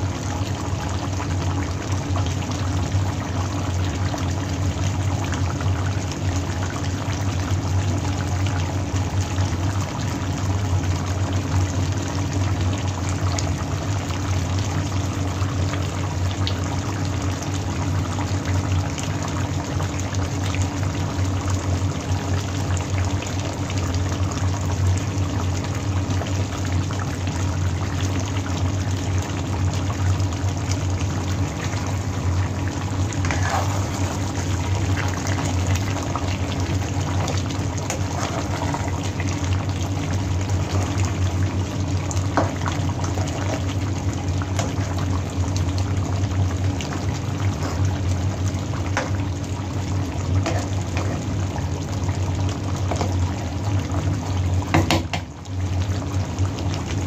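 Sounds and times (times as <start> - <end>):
low steady hum: 0.0 - 57.0
stew simmering and bubbling: 0.0 - 57.0
spatula stirring in pan: 31.8 - 40.9, 47.1 - 49.4.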